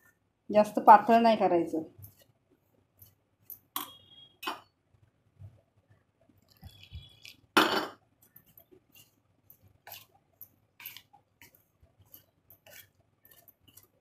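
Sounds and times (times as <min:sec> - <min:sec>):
spoon scraping metal bowl: 0:08.4 - 0:14.0.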